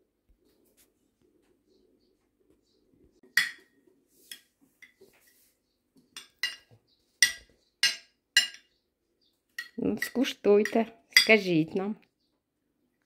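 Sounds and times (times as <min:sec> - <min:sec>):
spoon clinking on ceramic plate: 0:03.4 - 0:03.7, 0:06.2 - 0:08.7, 0:09.6 - 0:11.4.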